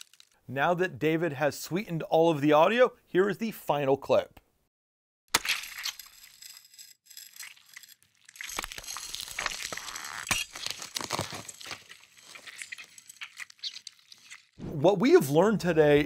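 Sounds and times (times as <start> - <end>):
wet crunching and squelching: 7.5 - 14.6.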